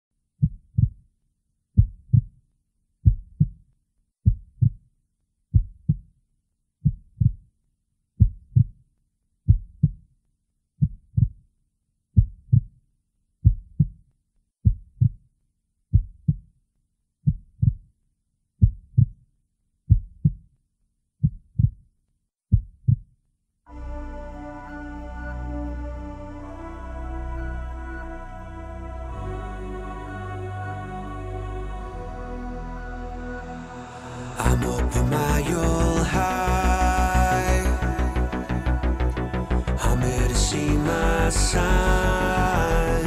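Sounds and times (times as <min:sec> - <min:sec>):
slow heartbeat: 0:00.4 - 0:01.0, 0:01.8 - 0:02.3, 0:03.0 - 0:03.6, 0:04.3 - 0:04.8, 0:05.6 - 0:06.0, 0:06.8 - 0:07.4, 0:08.2 - 0:08.7, 0:12.2 - 0:12.7, 0:13.4 - 0:13.9, 0:14.7 - 0:15.2, 0:15.9 - 0:16.4, 0:17.3 - 0:17.8, 0:18.6 - 0:19.1, 0:19.9 - 0:20.4, 0:21.2 - 0:21.8.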